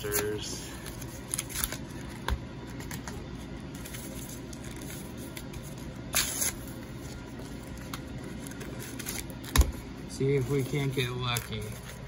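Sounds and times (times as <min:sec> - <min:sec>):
foil wrapper ripping: 0:00.0 - 0:02.1, 0:03.8 - 0:09.5, 0:10.2 - 0:12.0
foil wrapper crinkling: 0:00.0 - 0:12.0.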